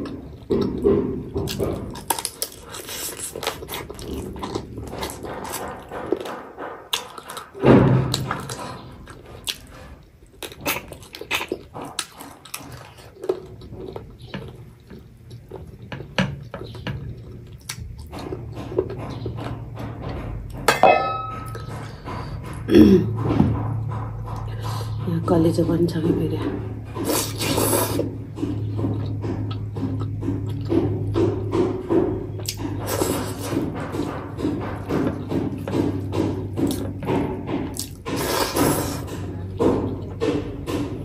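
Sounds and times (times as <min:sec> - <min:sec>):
wet chewing and lip smacks: 0:01.5 - 0:19.0
glass bowl clinking: 0:20.7 - 0:21.7.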